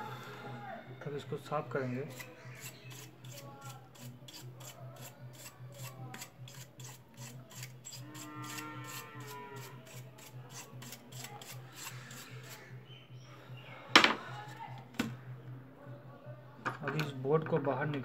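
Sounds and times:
brush scrubbing circuit board: 2.1s - 12.7s.

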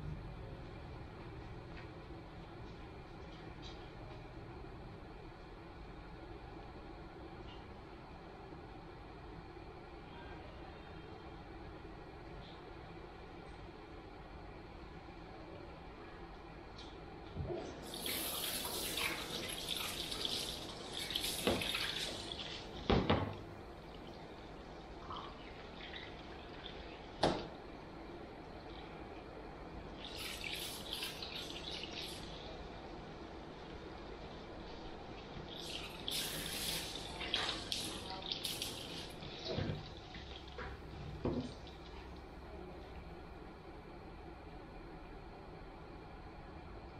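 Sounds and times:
water spraying into basin: 17.8s - 22.8s, 30.0s - 32.6s, 35.4s - 40.7s.

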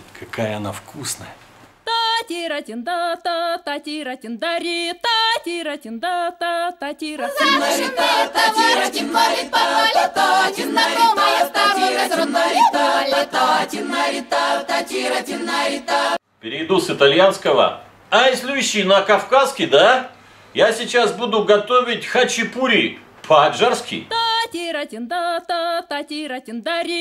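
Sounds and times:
unaccompanied choir singing: 7.0s - 16.2s.

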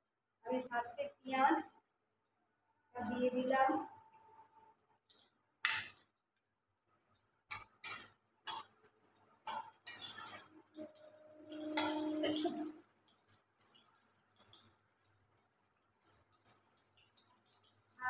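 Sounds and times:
light sizzle: 0.0s - 18.0s
metal spatula scraping wok: 7.5s - 12.8s.

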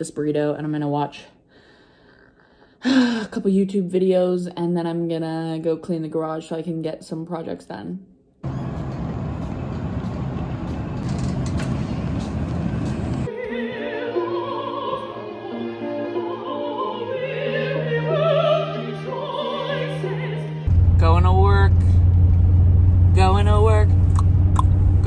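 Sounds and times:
string ensemble playing: 12.3s - 21.7s
woman singing operatically: 13.3s - 20.7s.

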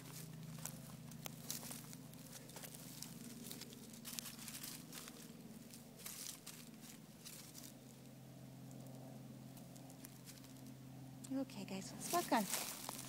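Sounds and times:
dry leaves rustling and crackling: 0.0s - 8.1s, 9.6s - 10.7s, 11.9s - 13.0s
faint low hum: 0.0s - 13.0s.

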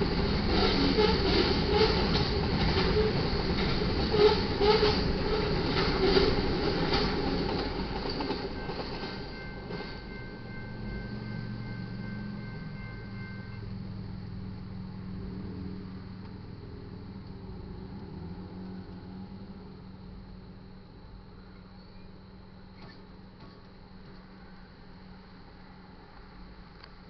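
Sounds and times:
train wheels clattering over rails: 0.0s - 13.7s.

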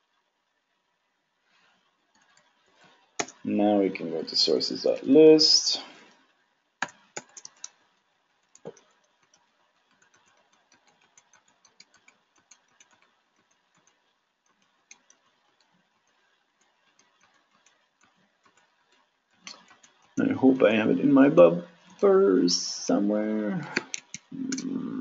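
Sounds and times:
keyboard keys tapping: 3.2s - 3.4s, 6.8s - 7.8s, 8.5s - 18.7s.

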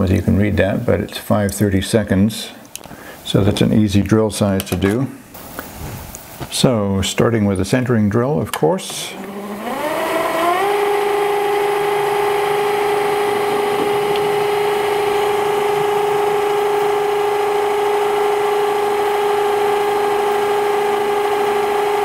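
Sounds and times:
lathe motor whine: 9.1s - 22.0s.

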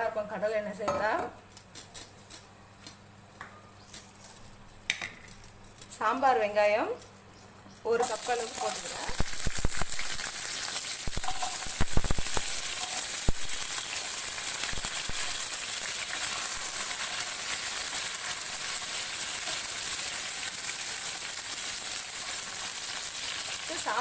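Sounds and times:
onions sizzling in oil: 8.0s - 24.0s
sharp knocks and pops: 11.0s - 12.5s.

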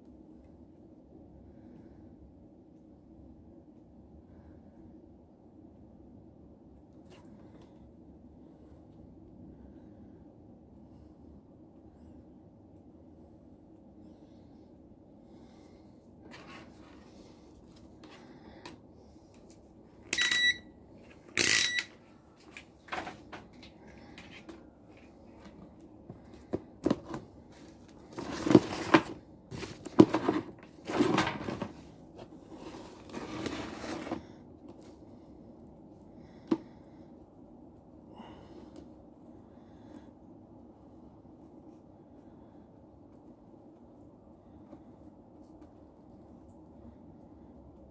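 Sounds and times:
multimeter beeps: 20.1s - 20.7s, 21.4s - 22.0s.

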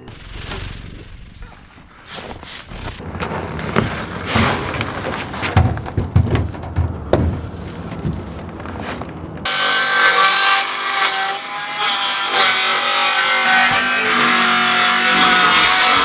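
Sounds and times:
wooden boards knocking: 3.8s - 8.3s
circular saw cutting wood: 9.5s - 16.0s.

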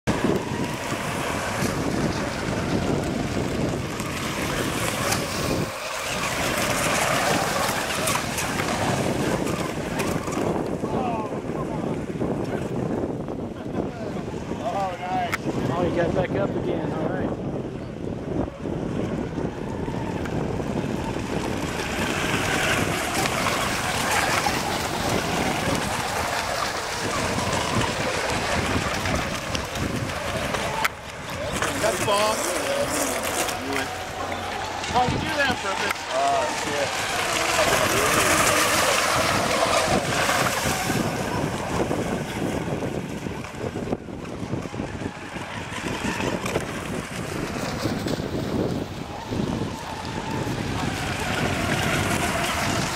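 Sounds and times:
model boats racing: 0.0s - 52.9s
wind buffeting microphone: 0.0s - 52.9s.

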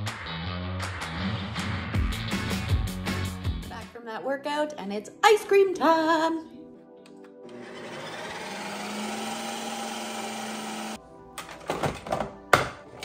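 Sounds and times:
ice cream maker whirring: 7.4s - 11.0s.

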